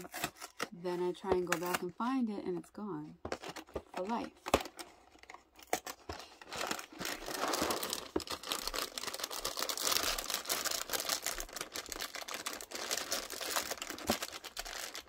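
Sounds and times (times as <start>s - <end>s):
plastic bag crinkling: 3.4s - 15.0s.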